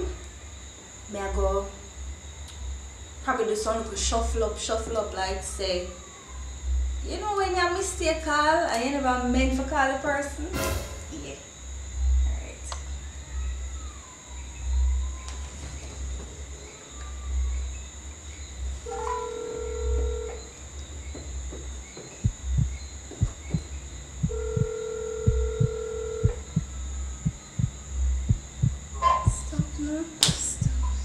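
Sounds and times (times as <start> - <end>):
phone ringback tone: 18.9 - 20.4, 24.3 - 26.4
low thumping pulse: 21.3 - 29.9, 30.6 - 31.0.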